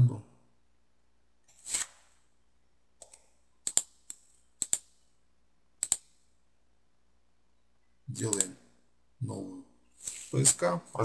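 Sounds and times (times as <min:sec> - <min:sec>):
mouse and keyboard clicks: 0:03.0 - 0:05.0, 0:05.8 - 0:06.2, 0:08.2 - 0:08.6
short soft hiss: 0:09.9 - 0:10.5.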